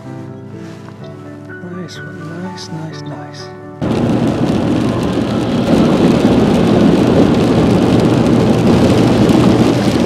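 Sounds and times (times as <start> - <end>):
car hum on the road: 3.8 - 10.0
rain striking car windows and roof: 3.8 - 10.0.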